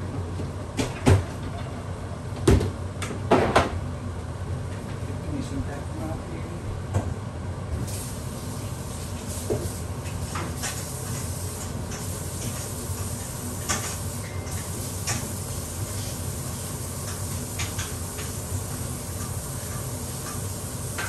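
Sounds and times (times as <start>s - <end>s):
low hum and hiss: 0.0s - 21.0s.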